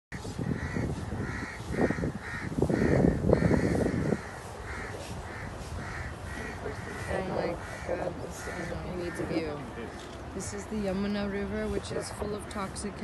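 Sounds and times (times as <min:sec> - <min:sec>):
crows cawing: 0:00.2 - 0:10.0.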